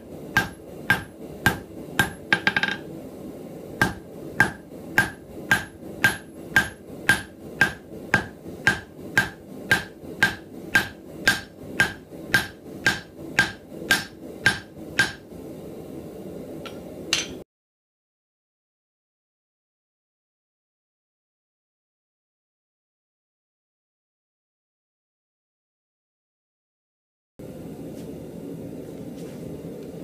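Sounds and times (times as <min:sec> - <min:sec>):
hammer striking steel on anvil: 0:00.3 - 0:02.9, 0:03.8 - 0:15.2, 0:16.7 - 0:17.4.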